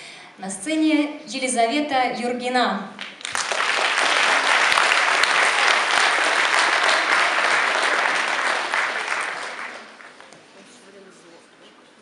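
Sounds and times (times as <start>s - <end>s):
audience applauding: 3.0s - 10.4s.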